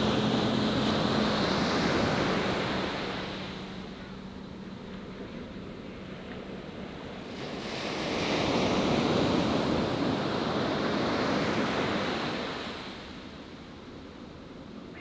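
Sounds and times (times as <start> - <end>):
ocean wave breaking on sand: 0.0 - 3.8.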